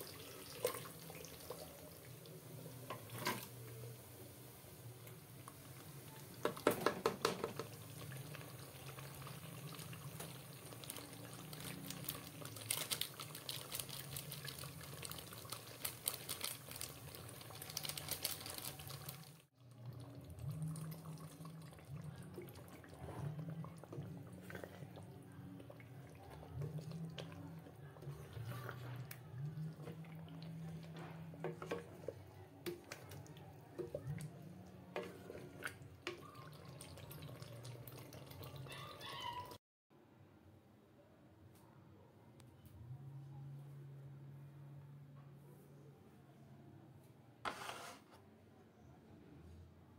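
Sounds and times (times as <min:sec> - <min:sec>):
stew bubbling and sizzling: 0:00.0 - 0:39.6.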